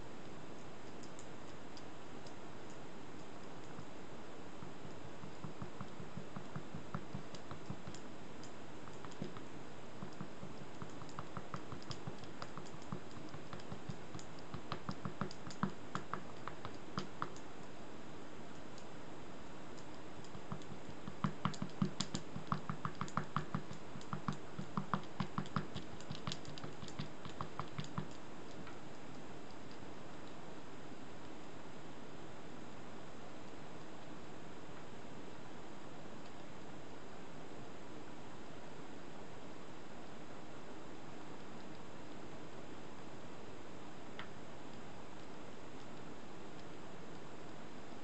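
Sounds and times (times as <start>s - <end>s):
brush tapping on paper board: 4.6s - 8.0s, 8.8s - 17.4s, 20.3s - 28.7s.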